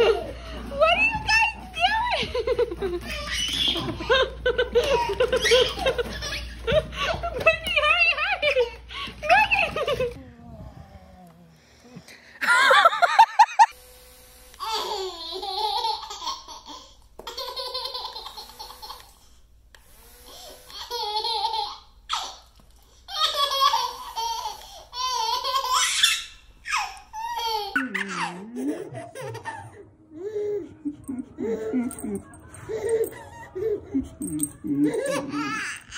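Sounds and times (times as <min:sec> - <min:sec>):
baby laughing: 0:01.8 - 0:07.6, 0:14.6 - 0:19.2, 0:20.7 - 0:22.5, 0:23.1 - 0:35.9.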